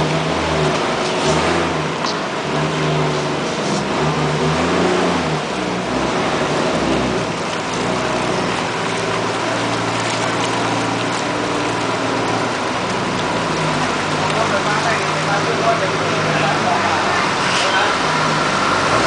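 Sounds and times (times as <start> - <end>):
vehicle engine running: 0.0 - 19.0
water noise: 0.0 - 19.0.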